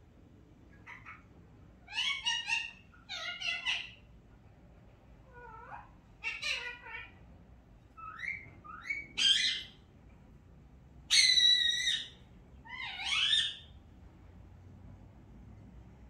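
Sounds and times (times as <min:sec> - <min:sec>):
animal squeaky calls: 0:08.0 - 0:09.8, 0:11.1 - 0:13.7.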